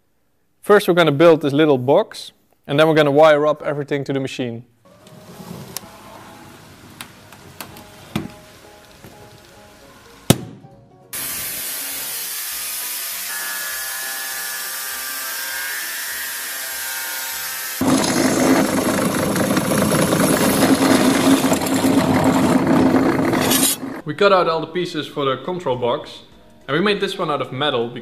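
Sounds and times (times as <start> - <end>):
angle grinder cutting steel: 11.2 - 24.0
drill boring through metal: 11.2 - 24.0.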